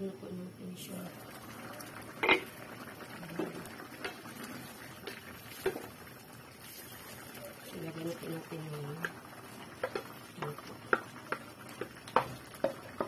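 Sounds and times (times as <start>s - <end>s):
pot lid clanking: 2.2s - 2.5s
spatula knocking against pan: 10.9s - 13.0s.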